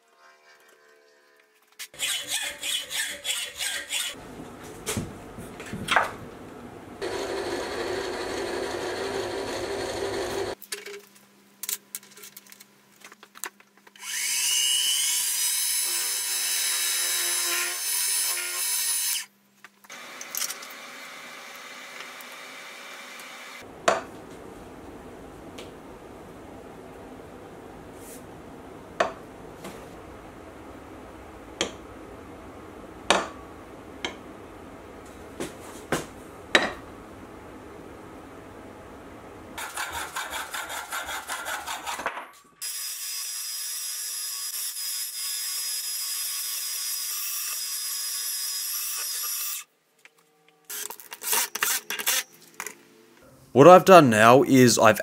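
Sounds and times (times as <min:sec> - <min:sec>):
mill spindle spinning: 0:06.9 - 0:10.6.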